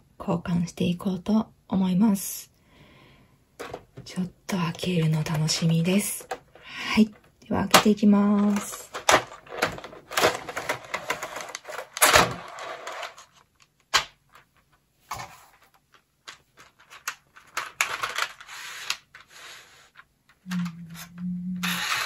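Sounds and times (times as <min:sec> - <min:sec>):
plastic case clicks and clacks: 0:03.6 - 0:04.1, 0:05.0 - 0:14.4, 0:15.9 - 0:19.2
low hum: 0:20.5 - 0:21.8.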